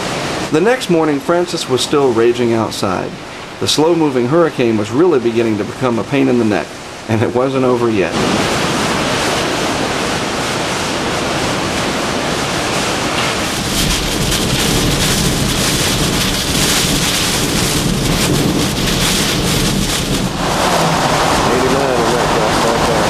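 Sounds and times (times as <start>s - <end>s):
driving rain: 0.0s - 23.0s
strong wind: 0.0s - 23.0s
wind buffeting microphone: 7.9s - 23.0s.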